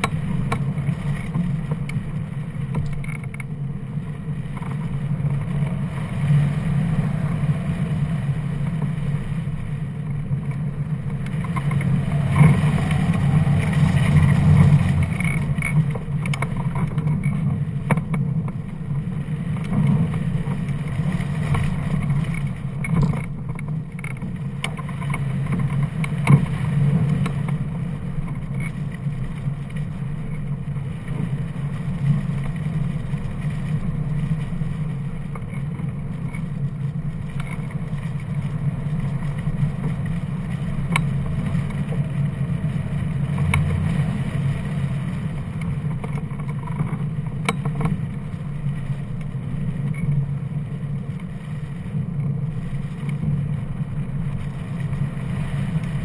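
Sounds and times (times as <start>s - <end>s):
wind rushing over microphone: 3.8s - 24.6s.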